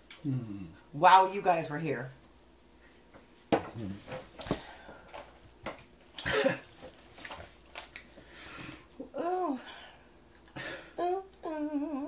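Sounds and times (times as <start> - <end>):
person coughing: 6.2 - 6.7.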